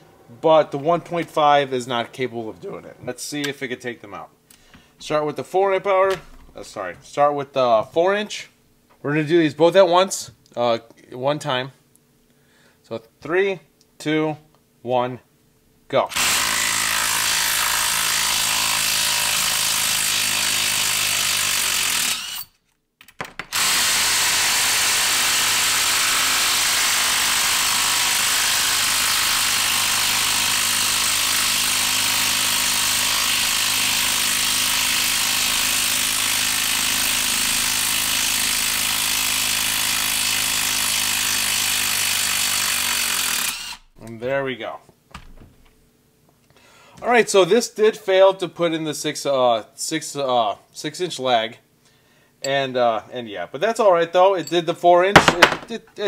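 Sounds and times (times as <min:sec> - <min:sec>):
impact driver hammering on screw: 0:55.2 - 0:55.7.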